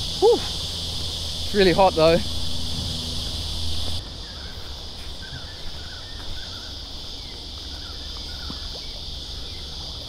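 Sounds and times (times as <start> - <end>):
low rumble: 0.0 - 5.0
insects droning: 0.0 - 10.0
faint bird chirps: 3.6 - 9.7.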